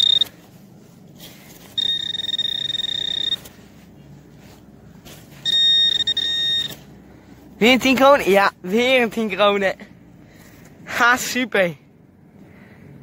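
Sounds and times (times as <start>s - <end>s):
high-pitched metal detector tone: 0.0s - 0.3s, 1.6s - 3.6s, 5.4s - 6.8s.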